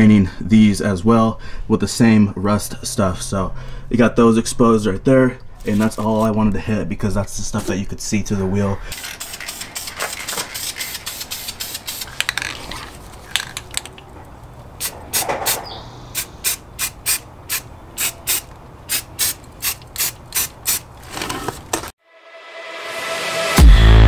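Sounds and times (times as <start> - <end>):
spray can being shaken: 9.0 - 13.9, 16.2 - 21.0
electronic music: 22.1 - 24.0.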